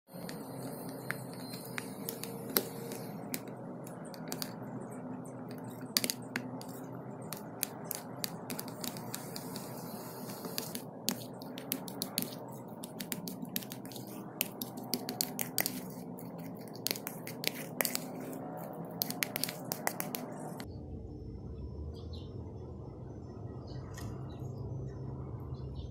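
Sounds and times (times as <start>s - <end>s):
low background hum: 0.1s - 25.9s
fork tapping plastic bowl: 0.2s - 4.6s, 5.5s - 20.4s.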